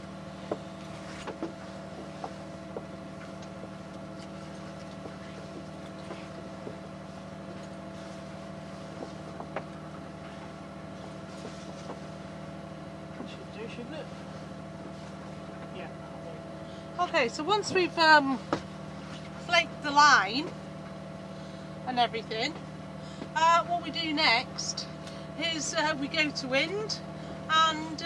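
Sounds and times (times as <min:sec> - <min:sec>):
boat engine humming: 0:00.0 - 0:28.0
rope clicks and knocks: 0:00.5 - 0:06.8.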